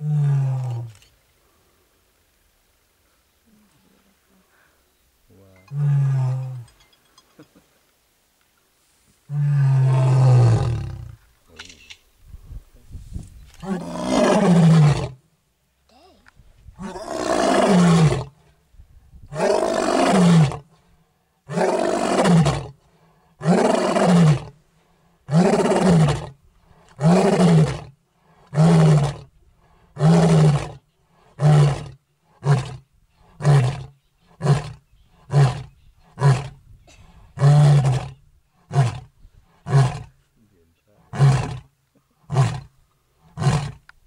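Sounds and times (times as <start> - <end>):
lion roaring: 13.6 - 15.2, 16.8 - 18.4, 19.3 - 20.6, 21.5 - 22.8, 23.4 - 24.6, 25.3 - 32.8, 33.4 - 36.6, 37.4 - 40.2, 41.0 - 42.7, 43.3 - 43.8.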